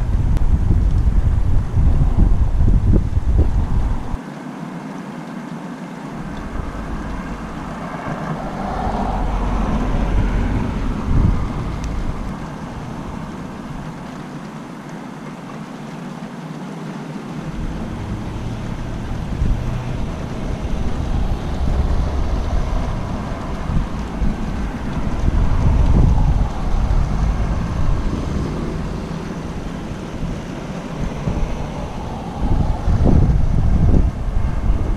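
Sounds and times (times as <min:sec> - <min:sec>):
thunder rumbling: 0:06.2 - 0:14.4, 0:17.4 - 0:34.9.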